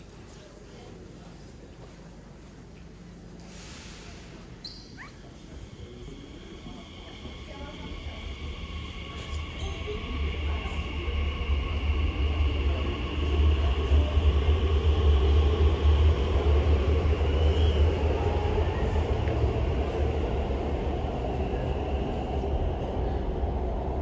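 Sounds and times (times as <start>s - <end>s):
train deep rumble: 5.2s - 24.0s
train steady whine: 5.2s - 24.0s.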